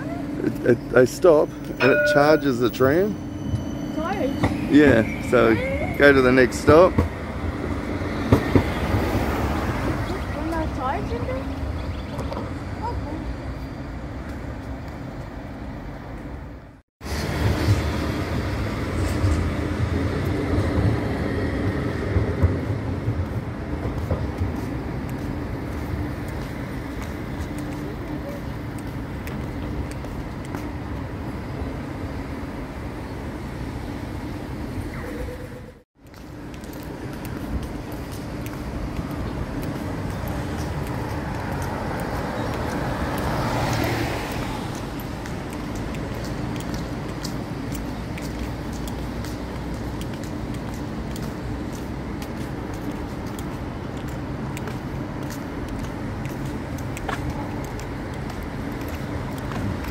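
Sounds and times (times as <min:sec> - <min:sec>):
tram wheels rumbling on rail: 0:00.0 - 0:59.9
car passing by: 0:03.9 - 0:11.4, 0:39.8 - 0:45.3.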